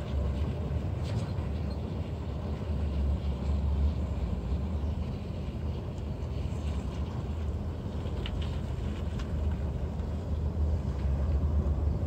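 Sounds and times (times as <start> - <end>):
pickup truck rumbling: 0.0 - 12.0.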